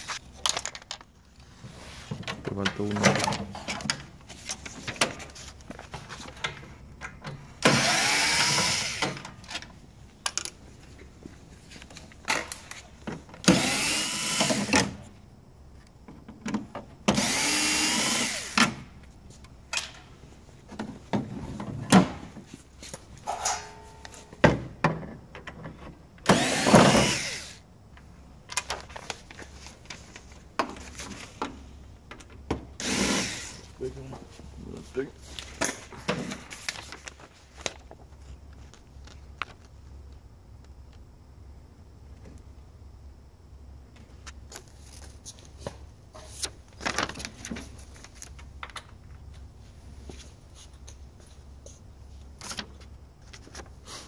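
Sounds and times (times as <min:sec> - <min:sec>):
cordless drill whining: 0:07.6 - 0:09.2, 0:13.4 - 0:15.0, 0:17.1 - 0:18.8, 0:26.3 - 0:27.6, 0:32.8 - 0:33.6.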